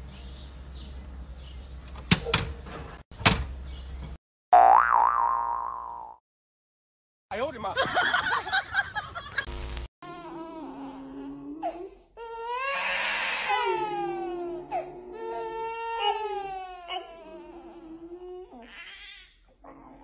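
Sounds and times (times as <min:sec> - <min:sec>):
infant crying: 0:10.0 - 0:19.4
burst of hiss: 0:12.7 - 0:13.8
dog howling: 0:12.7 - 0:18.6.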